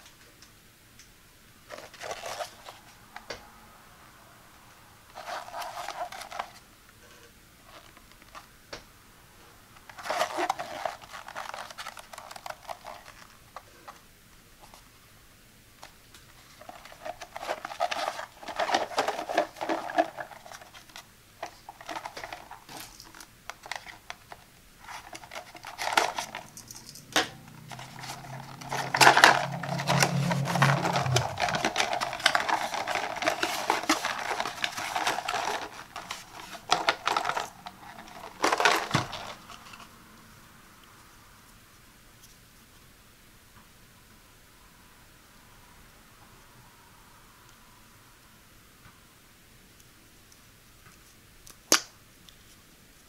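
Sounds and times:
cardboard box crinkling: 1.7s - 2.8s, 5.1s - 6.6s, 9.8s - 14.0s, 16.4s - 26.6s, 27.6s - 39.9s
cardboard scraping and tearing: 5.1s - 6.6s, 9.9s - 13.8s, 16.4s - 24.1s, 24.8s - 26.4s, 27.6s - 39.9s.

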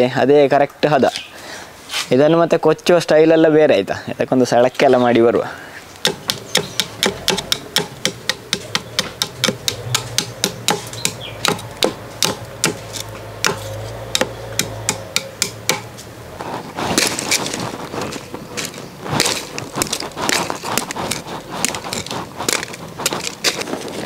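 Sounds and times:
knife chopping wood stick: 6.0s - 17.8s, 19.0s - 23.8s.

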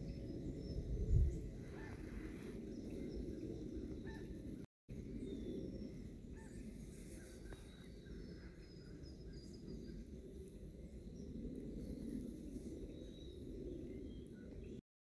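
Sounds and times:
steady low outdoor noise: 1.4s - 14.8s
faint bird chirps: 5.0s - 14.8s.

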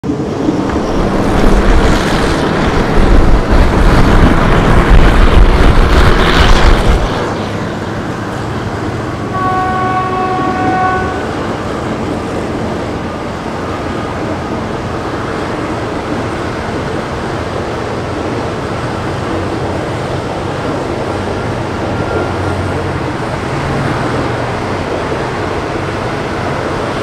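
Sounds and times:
train running rumble: 0.0s - 27.0s
locomotive horn blast: 9.2s - 11.5s.

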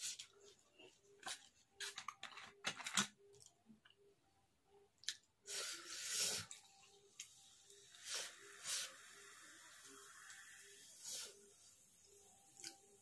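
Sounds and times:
soda pouring and fizzing: 5.5s - 13.0s.

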